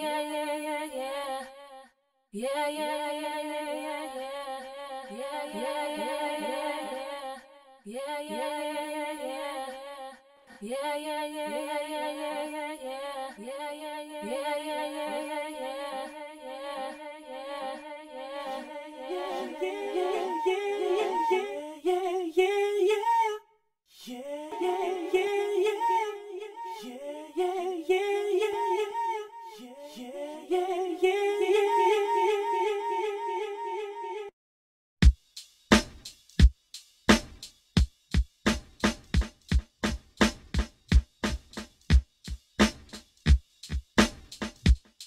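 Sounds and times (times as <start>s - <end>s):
singing voice with echo repeats: 0.0s - 34.3s.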